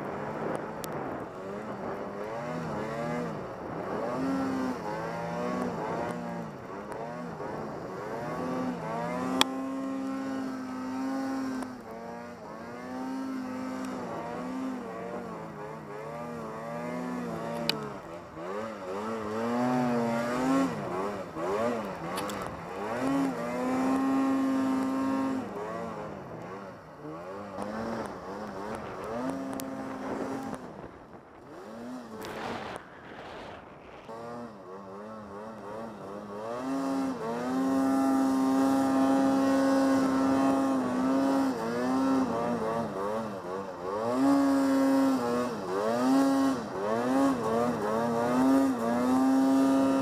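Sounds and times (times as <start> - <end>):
snowmobile engine revving: 0.0 - 50.0.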